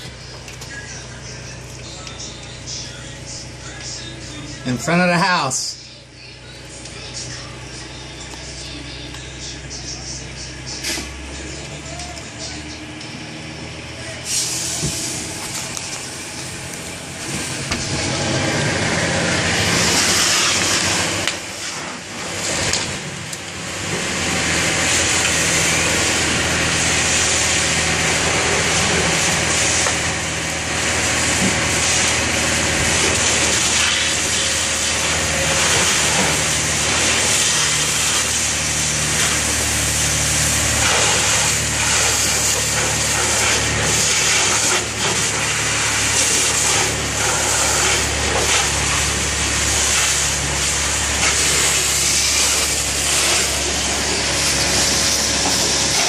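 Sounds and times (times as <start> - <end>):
engine running low: 0.0 - 56.0
fire hose spray hissing: 14.2 - 23.0, 23.8 - 56.0.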